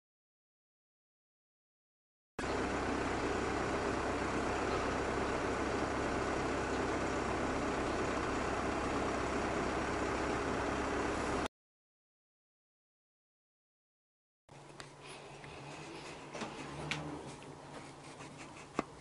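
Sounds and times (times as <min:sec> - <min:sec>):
diesel engine idling: 0:02.4 - 0:11.5.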